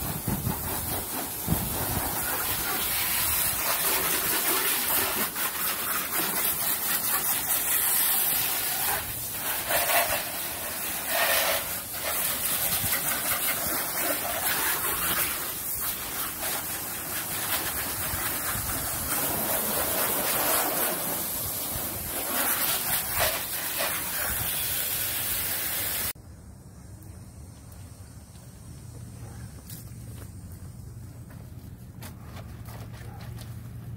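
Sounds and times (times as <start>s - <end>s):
hose water jet hissing on car: 0.0s - 26.2s.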